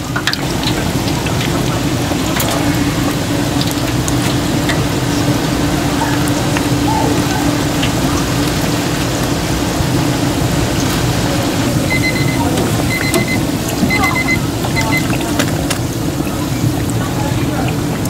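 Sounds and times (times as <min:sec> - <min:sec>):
food deep-frying in oil: 0:00.0 - 0:18.0
high electronic beep: 0:11.9 - 0:15.1.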